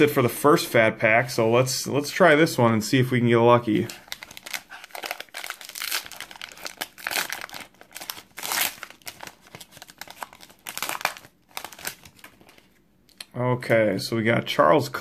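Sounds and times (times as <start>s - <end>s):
wrapper crinkling and tearing: 3.9s - 12.8s.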